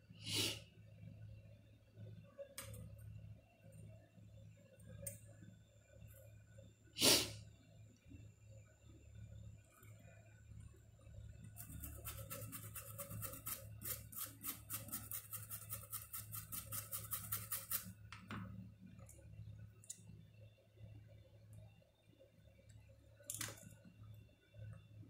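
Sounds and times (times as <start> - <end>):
low steady hum: 0.0 - 25.0
brush scrubbing circuit board: 11.5 - 18.0.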